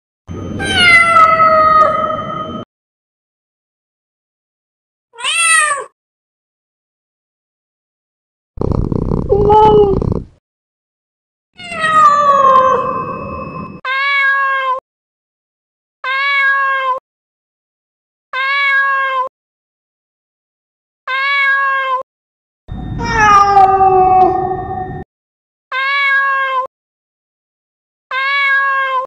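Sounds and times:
cat meowing: 0:00.6 - 0:02.2, 0:05.2 - 0:05.9, 0:09.3 - 0:10.2, 0:11.6 - 0:12.9, 0:13.8 - 0:14.8, 0:16.0 - 0:17.0, 0:18.4 - 0:19.3, 0:21.1 - 0:22.0, 0:23.0 - 0:25.0, 0:25.7 - 0:26.7, 0:28.1 - 0:29.0.

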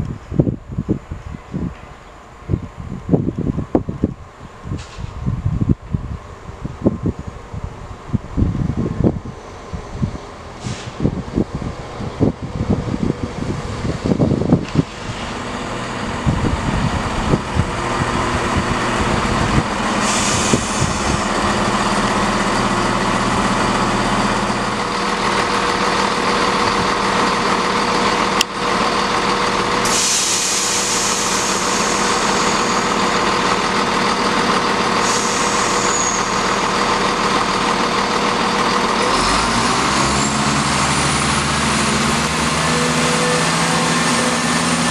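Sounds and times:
diesel train engines idling: 0:00.0 - 0:44.9
air hiss: 0:10.5 - 0:11.2, 0:19.8 - 0:21.4, 0:29.8 - 0:33.1, 0:35.0 - 0:36.6.

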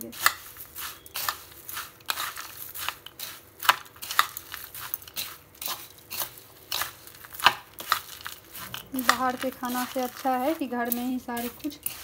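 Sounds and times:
puffed rice rustling in a bowl: 0:00.0 - 0:12.0
spoon clinking against bowl: 0:00.2 - 0:01.5.

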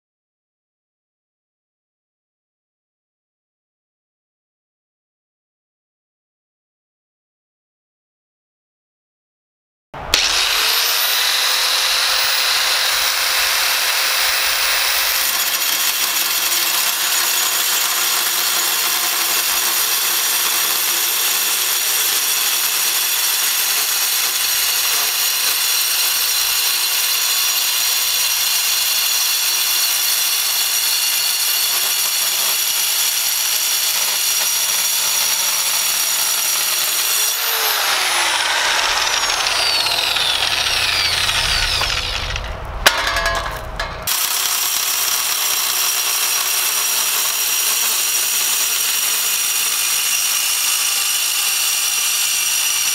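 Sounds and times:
circular saw cutting steel: 0:10.0 - 0:52.9.

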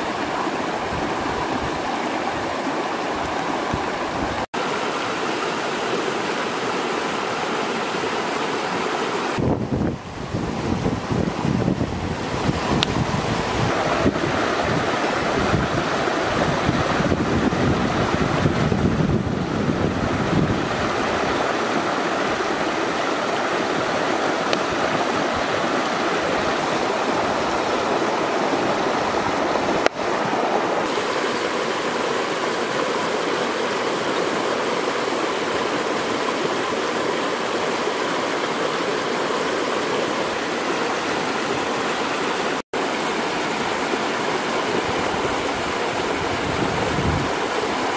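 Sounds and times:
rocky stream flowing: 0:00.0 - 0:47.9
wind buffeting microphone: 0:09.4 - 0:29.9, 0:44.6 - 0:47.9.

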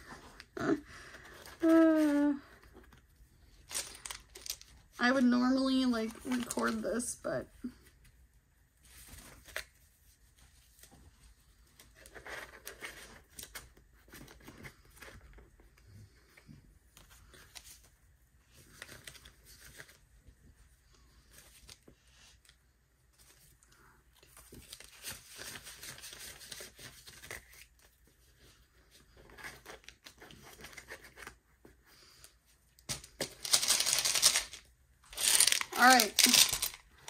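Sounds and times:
paper banknotes rustling: 0:32.9 - 0:36.8.

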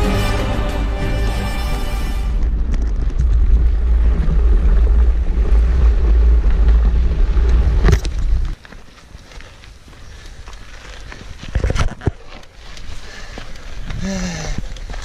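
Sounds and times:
wind rumble on microphone: 0:01.9 - 0:08.6.

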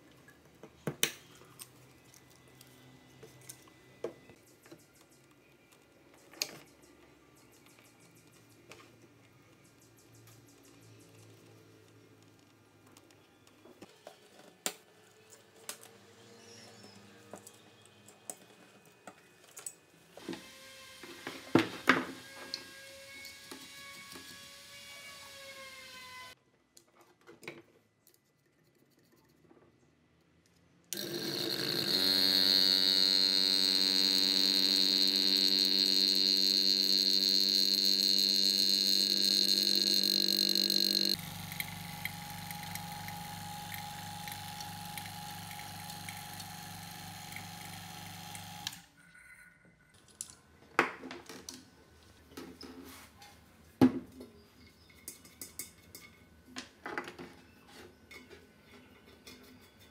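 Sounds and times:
vacuum pump running: 0:31.0 - 0:48.9.

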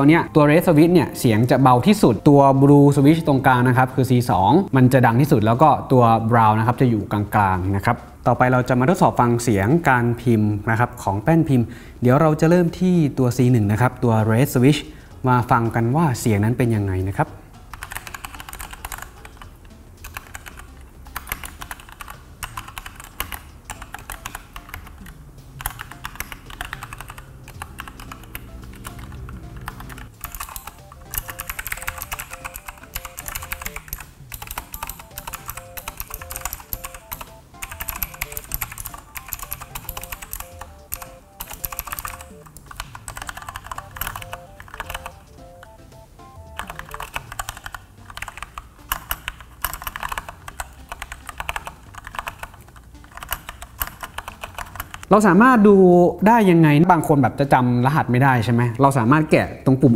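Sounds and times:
background music: 0:00.0 - 0:59.9
mechanical keyboard typing: 0:17.7 - 0:45.8, 0:46.4 - 0:55.2.

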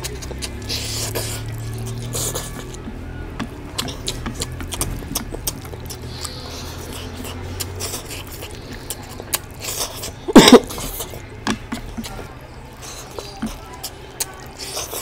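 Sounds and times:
person chewing food: 0:00.0 - 0:15.0
cough-like sound: 0:10.0 - 0:11.2.

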